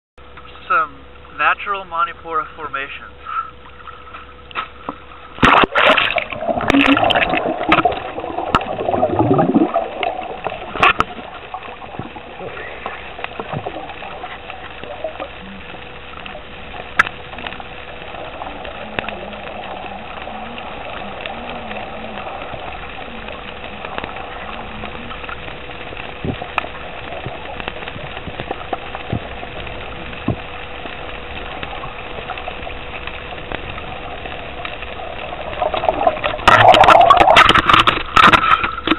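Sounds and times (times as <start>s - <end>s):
muffled underwater hiss: 0.4s - 38.9s
loud water splashing: 5.4s - 38.9s.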